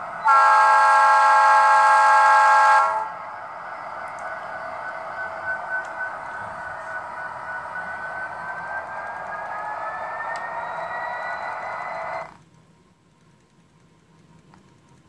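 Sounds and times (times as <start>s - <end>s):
model train air horn: 0.0s - 3.2s.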